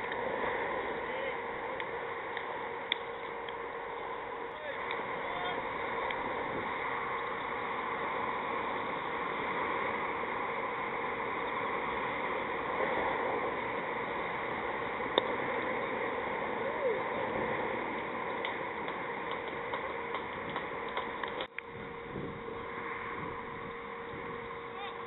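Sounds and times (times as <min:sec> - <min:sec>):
outdoor ambient hiss: 0:00.0 - 0:25.0.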